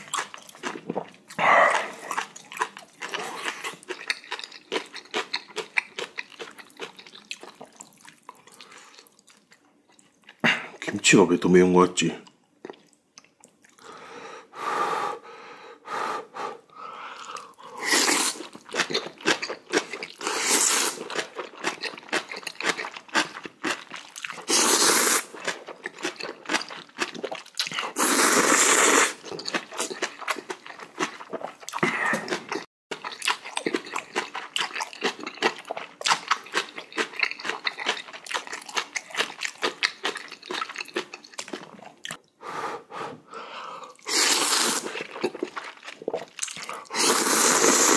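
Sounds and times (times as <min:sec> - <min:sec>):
crunching and chewing: 0:00.0 - 0:11.0, 0:12.2 - 0:13.8, 0:17.2 - 0:42.3, 0:44.0 - 0:47.9
loud noodle slurps: 0:17.8 - 0:18.6, 0:20.2 - 0:21.1, 0:24.4 - 0:25.6, 0:27.2 - 0:29.8, 0:44.0 - 0:47.9.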